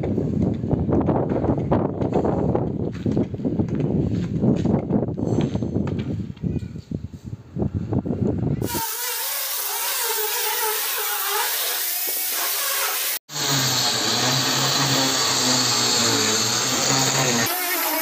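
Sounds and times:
power drill boring into concrete: 8.6s - 18.0s.

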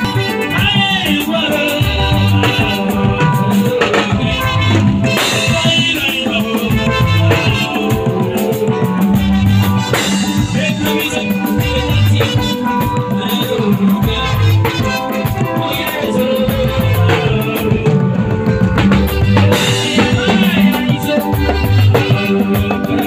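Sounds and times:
drum kit beat: 0.0s - 23.0s
electric guitar and bass: 0.0s - 23.0s
man singing into a microphone: 0.0s - 23.0s.

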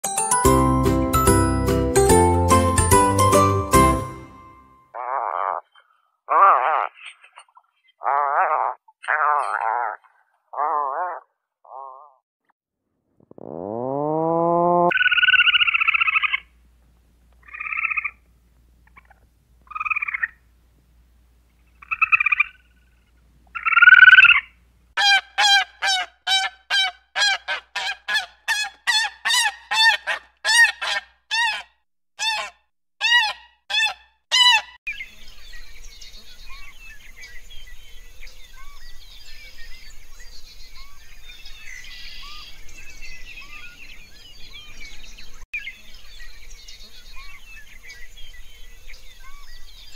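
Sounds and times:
animal calling loudly: 5.0s - 7.4s, 8.0s - 12.2s, 23.6s - 34.8s.

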